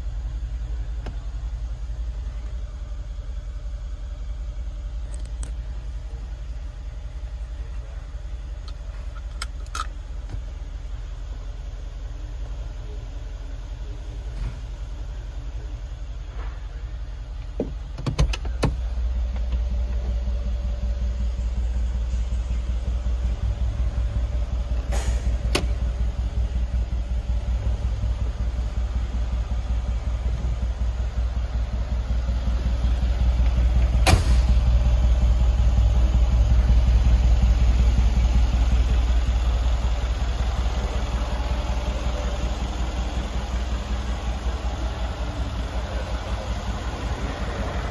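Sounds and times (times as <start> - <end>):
car engine idling: 0.0 - 47.9
sharp clicks and knocks: 17.4 - 20.0.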